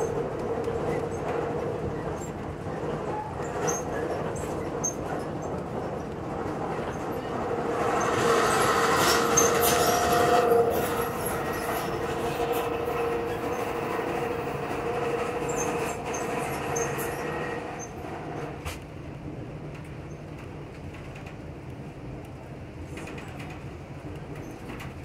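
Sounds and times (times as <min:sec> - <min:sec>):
train rumble and rattle: 0:00.0 - 0:25.0
high wheel squeal: 0:07.9 - 0:18.5.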